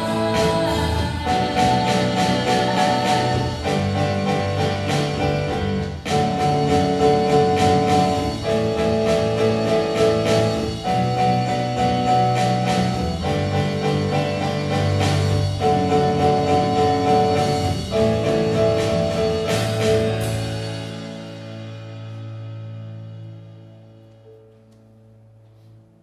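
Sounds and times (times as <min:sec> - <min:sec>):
live band instrumental music: 0:00.0 - 0:25.8.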